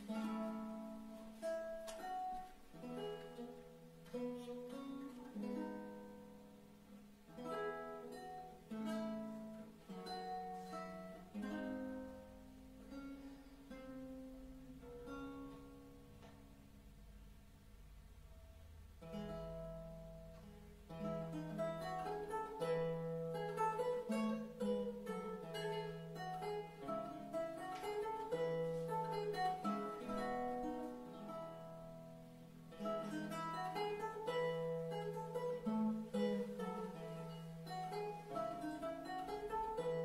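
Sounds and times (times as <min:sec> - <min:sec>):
lute playing solo piece: 0:20.9 - 0:40.0.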